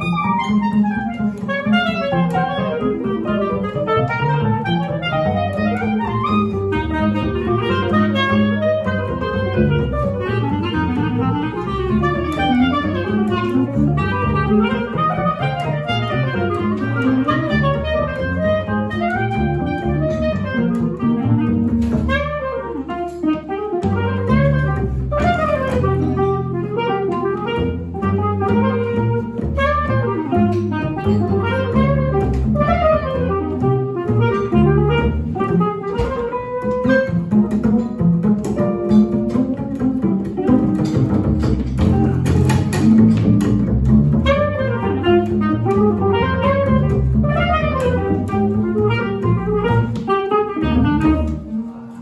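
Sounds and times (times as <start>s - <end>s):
bass line: 0.0s - 52.0s
clarinet melody: 0.0s - 52.0s.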